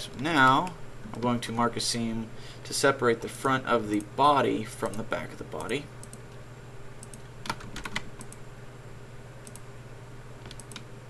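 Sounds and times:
keyboard keys clicking: 7.0 - 8.4, 10.4 - 10.9.

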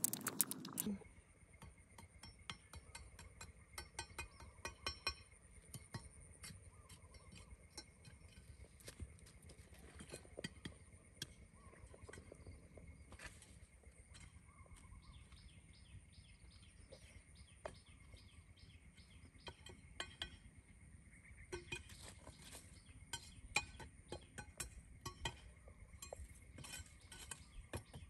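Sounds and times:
faint clicks and taps: 0.0 - 0.9.

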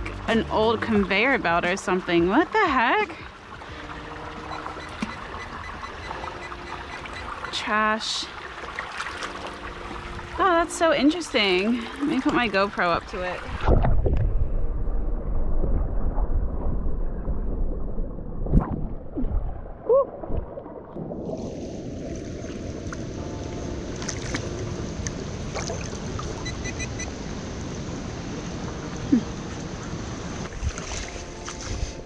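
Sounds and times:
creek running over rocks: 0.0 - 13.6
muffled underwater rumble: 9.6 - 26.8, 27.5 - 32.0
bubbly gurgle: 11.4 - 23.1.

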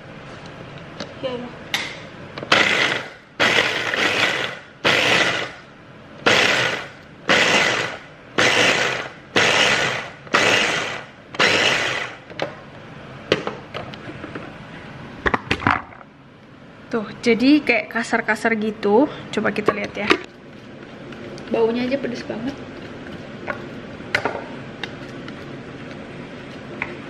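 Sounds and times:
food chopper pulsing: 2.5 - 5.6, 6.2 - 12.2.

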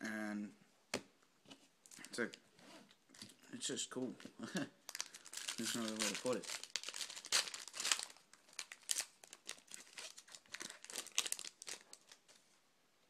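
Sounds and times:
foil wrapper crinkling: 4.9 - 12.4.

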